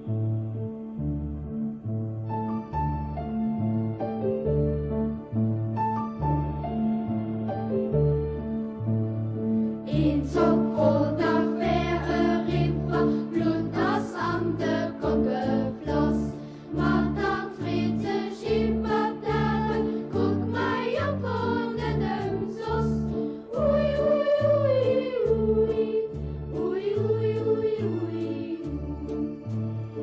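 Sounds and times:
instrumental accompaniment with bass: 0.0s - 30.0s
choir singing: 9.9s - 30.0s.

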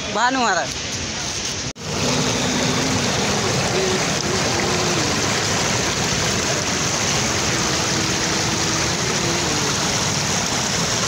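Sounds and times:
white water rushing over rocks: 1.8s - 11.0s.

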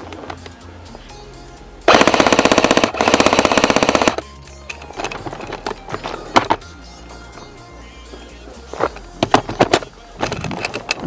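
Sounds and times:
airsoft rifle full-auto bursts: 1.9s - 4.2s.

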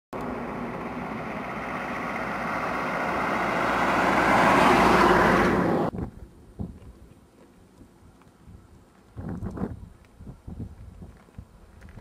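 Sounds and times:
truck passing by: 0.2s - 5.9s.

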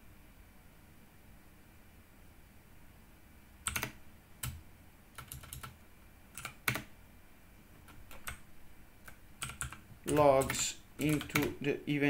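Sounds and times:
keyboard keystrokes: 3.7s - 4.6s, 5.2s - 5.8s, 6.4s - 6.9s, 7.9s - 8.4s, 9.0s - 11.6s.

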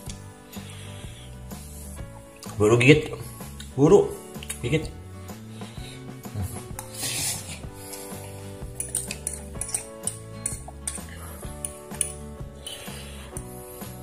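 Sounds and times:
background music: 0.0s - 14.0s
fork clinking on plate: 8.8s - 11.1s.

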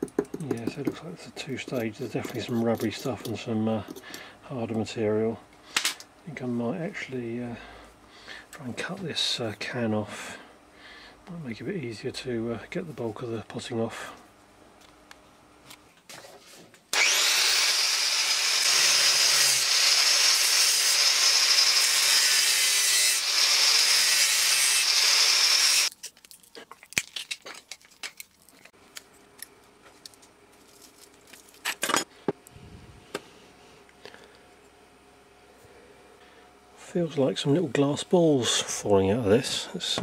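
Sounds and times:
angle grinder cutting metal: 16.9s - 25.9s.

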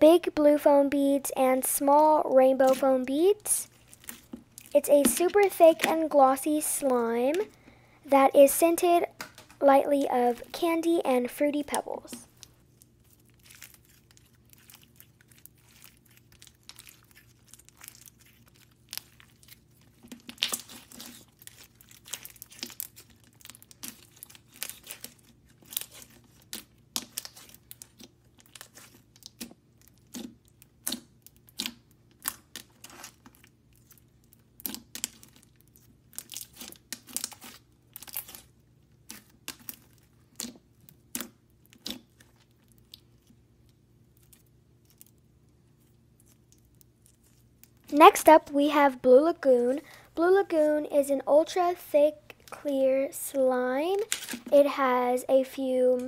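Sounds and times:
slime crackling and popping: 11.6s - 48.3s.

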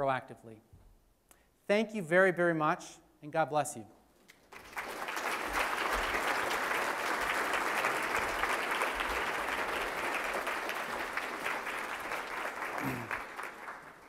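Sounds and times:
audience applauding: 4.4s - 14.0s.

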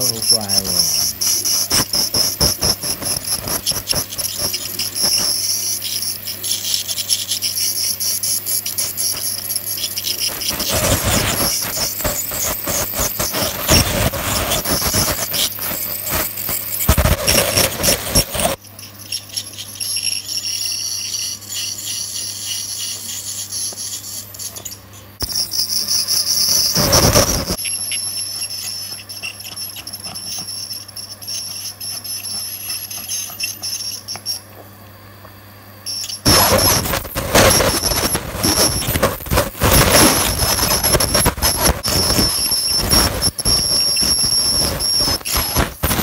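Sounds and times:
dental scaler whine: 0.0s - 46.0s.

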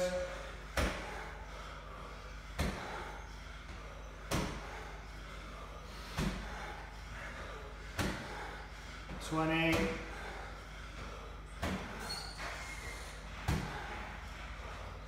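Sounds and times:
steady low hum: 0.0s - 15.0s
medicine ball thudding against wall: 0.7s - 1.1s, 2.6s - 2.9s, 4.3s - 4.7s, 6.0s - 6.6s, 7.9s - 8.4s, 9.6s - 10.1s, 11.6s - 12.0s, 13.3s - 14.0s.

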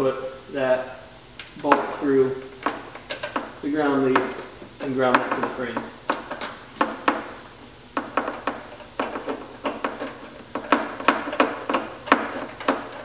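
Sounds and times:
hand ratchet clicking: 2.6s - 7.4s, 8.0s - 13.0s.

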